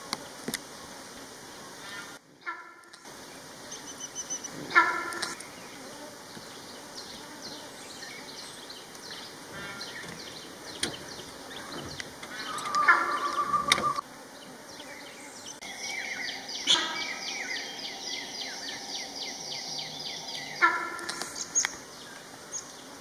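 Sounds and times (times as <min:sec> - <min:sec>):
insects: 0:00.0 - 0:23.0
small birds chirping: 0:02.8 - 0:23.0
short pitched bird calls: 0:09.5 - 0:14.0, 0:15.7 - 0:21.8.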